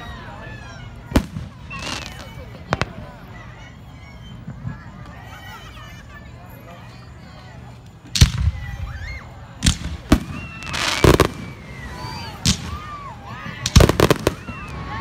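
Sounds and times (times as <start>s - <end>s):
fireworks bangs: 1.1s - 3.2s, 8.1s - 9.0s, 9.6s - 15.0s.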